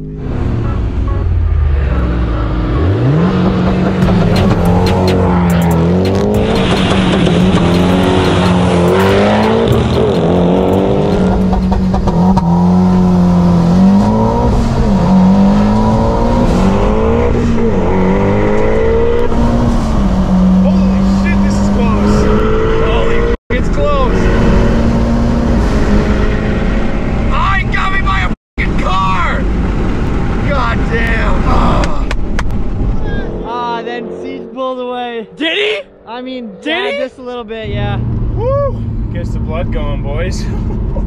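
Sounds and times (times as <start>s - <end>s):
car engine revving at full throttle: 0.1s - 27.4s, 29.1s - 34.4s.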